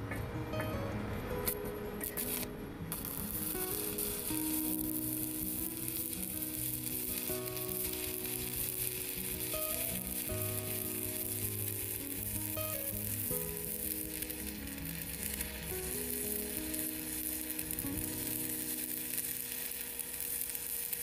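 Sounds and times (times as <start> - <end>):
tune playing: 0.0 - 19.5
welding arc crackling sizzle: 1.4 - 21.0.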